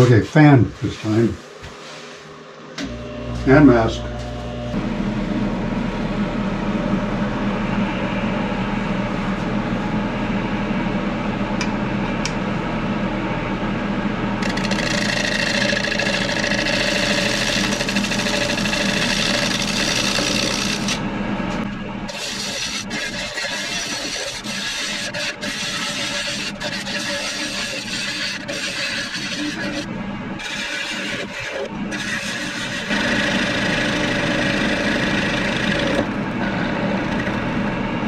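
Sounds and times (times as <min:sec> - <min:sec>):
wood lathe hum: 0:02.8 - 0:10.0, 0:13.8 - 0:38.0
gouge scraping wood: 0:14.4 - 0:21.0, 0:22.1 - 0:37.4.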